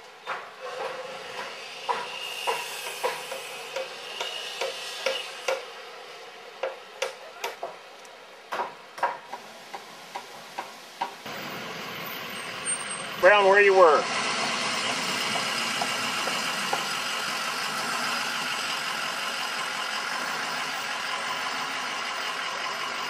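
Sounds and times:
steady background hiss: 0:07.7 - 0:12.4.

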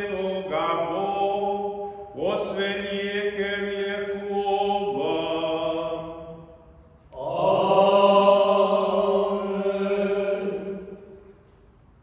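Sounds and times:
man chanting: 0:00.0 - 0:06.1.

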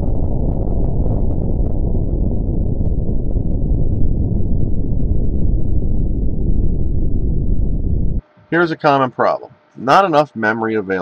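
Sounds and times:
explosion rumble with crackles: 0:00.0 - 0:08.2.

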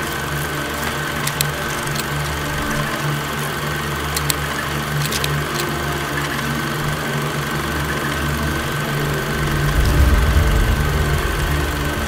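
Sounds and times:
film projector whirring: 0:00.0 - 0:09.2
sharp mechanical clicks: 0:01.1 - 0:03.0, 0:04.0 - 0:06.6.

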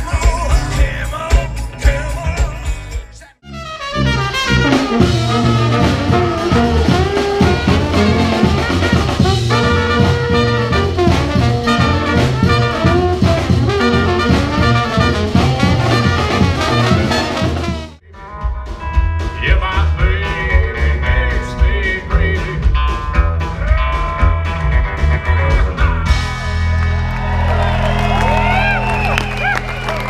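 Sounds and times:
live brass band playing: 0:03.4 - 0:26.9
electric guitar with bass and drums: 0:03.8 - 0:29.0.

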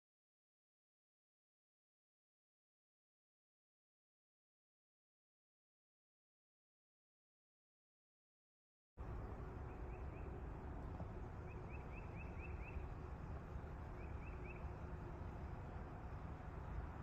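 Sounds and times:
small bird chirping: 0:11.4 - 0:12.9, 0:13.9 - 0:14.8.

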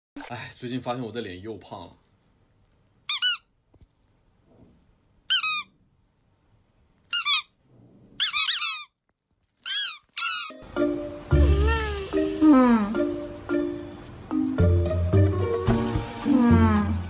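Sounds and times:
squeaky toy squeaks: 0:03.1 - 0:03.6, 0:05.3 - 0:05.8, 0:07.1 - 0:07.6, 0:08.2 - 0:09.0, 0:09.6 - 0:10.6, 0:11.3 - 0:12.2.

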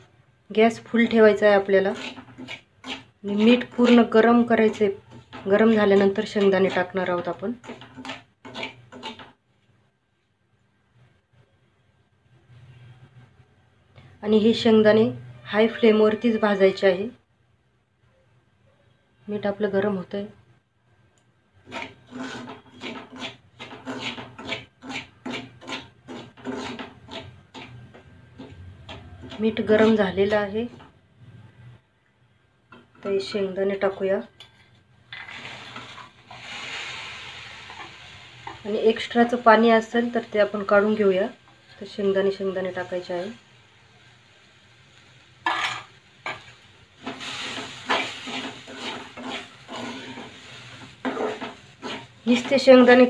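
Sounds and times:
spatula scraping coarse salt: 0:01.7 - 0:06.9, 0:21.6 - 0:27.8, 0:47.0 - 0:52.5.

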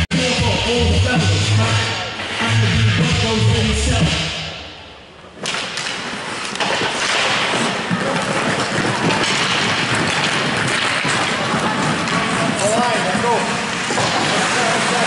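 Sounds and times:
rink music: 0:00.0 - 0:04.8
sticks and puck clacking: 0:05.3 - 0:15.0
skates scraping ice: 0:05.4 - 0:15.0.

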